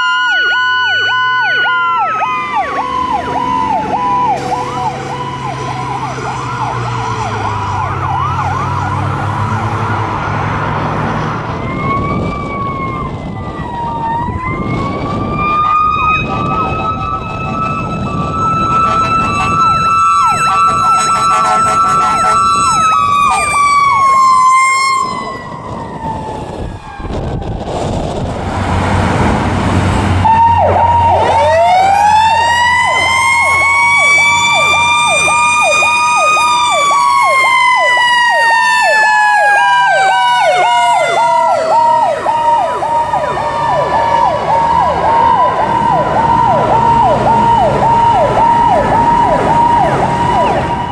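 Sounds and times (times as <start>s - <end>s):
rapid pulsing yelp siren: 0.0s - 27.6s, 30.2s - 50.9s
wailing siren: 0.0s - 50.9s
rushing noise: 16.2s - 31.6s.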